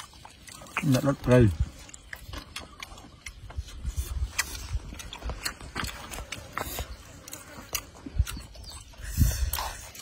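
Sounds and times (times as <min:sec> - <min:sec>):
chewing and smacking: 0:00.0 - 0:10.0.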